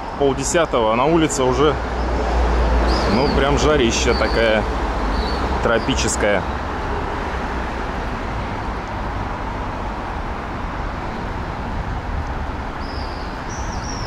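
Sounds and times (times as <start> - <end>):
city traffic rumble: 0.0 - 14.0
small bird chirping: 12.8 - 14.0.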